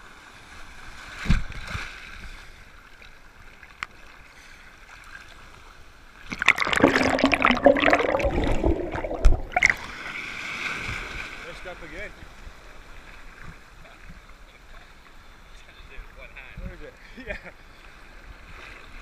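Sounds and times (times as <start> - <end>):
churning underwater gurgle: 6.2 - 10.2
surf washing over camera: 6.3 - 11.8.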